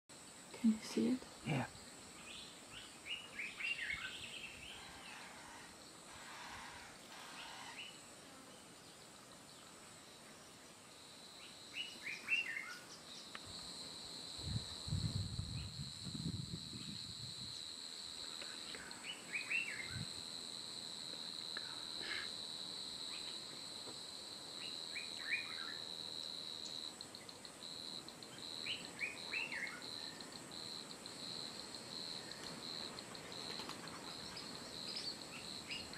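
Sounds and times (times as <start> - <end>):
high-pitched insect trill: 10.9 - 35.9.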